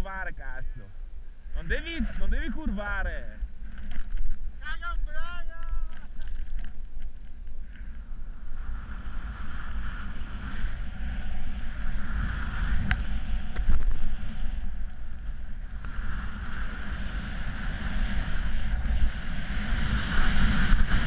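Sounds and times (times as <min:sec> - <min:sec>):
snowboard sliding over crusted snow: 0:05.8 - 0:21.0.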